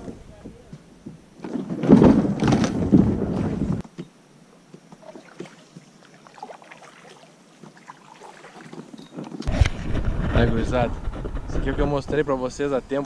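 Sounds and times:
kayak hull scraping over rock: 0:01.4 - 0:03.8, 0:08.5 - 0:12.3
water dripping and lapping: 0:04.9 - 0:09.5
paddle dipping in water: 0:04.9 - 0:09.6.

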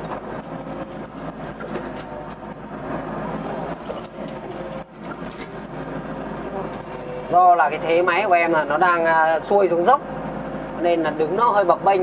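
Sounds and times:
excavator diesel engine running: 0:00.0 - 0:12.0.

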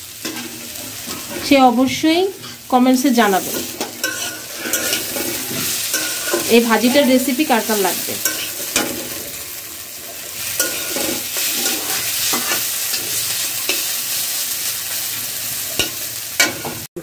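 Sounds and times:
vegetables sizzling in a pan: 0:00.0 - 0:17.0
spatula scraping a metal pan: 0:02.4 - 0:07.3, 0:08.1 - 0:09.4, 0:10.4 - 0:14.0.

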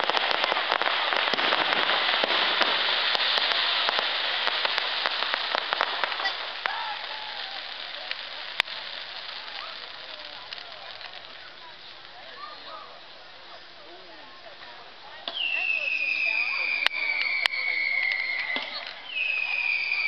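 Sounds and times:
fireworks crackling: 0:00.0 - 0:20.0.

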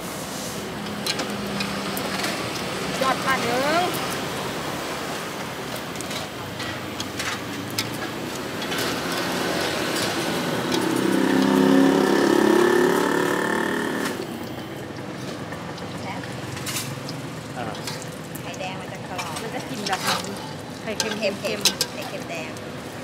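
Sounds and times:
vehicle engine passing: 0:07.5 - 0:18.2
metal spatula scraping wok: 0:19.1 - 0:22.3.

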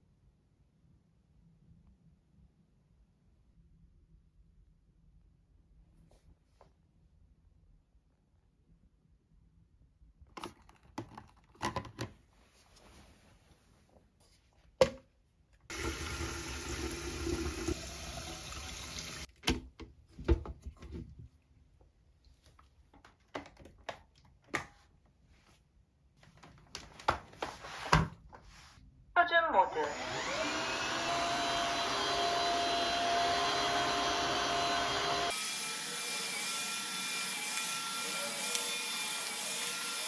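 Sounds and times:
tap water pouring into tank: 0:15.7 - 0:19.3.

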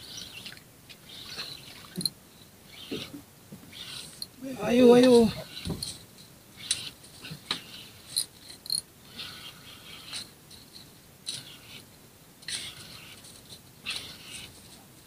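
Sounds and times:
fishing reel scratchy rasps: 0:02.7 - 0:06.0, 0:06.6 - 0:11.8, 0:12.5 - 0:14.7.

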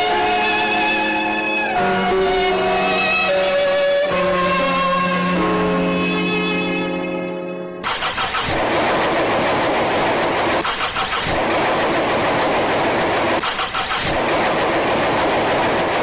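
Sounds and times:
engine running loudly: 0:07.8 - 0:16.0
rapid cranking pulses: 0:07.8 - 0:16.0.

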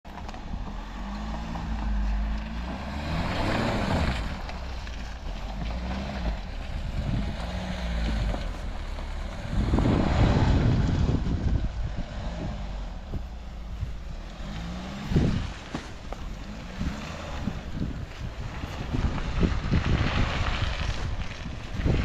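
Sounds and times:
car engine revving: 0:00.1 - 0:22.0
wind buffeting microphone: 0:00.1 - 0:22.0.

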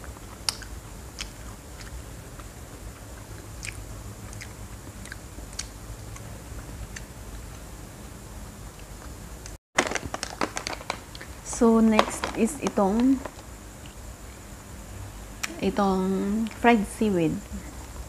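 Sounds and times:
chewing crispy snack: 0:00.0 - 0:07.5, 0:09.8 - 0:11.4
low steady hum: 0:00.0 - 0:18.0.

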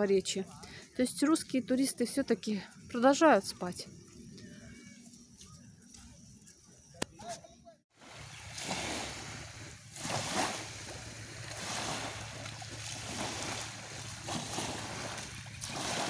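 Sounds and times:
small waves lapping on shore: 0:08.0 - 0:16.0
water sloshing around legs: 0:08.2 - 0:16.0.

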